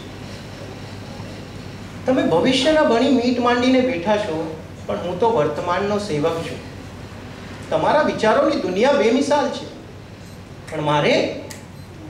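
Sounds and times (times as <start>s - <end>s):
room tone hiss: 0.0s - 12.0s.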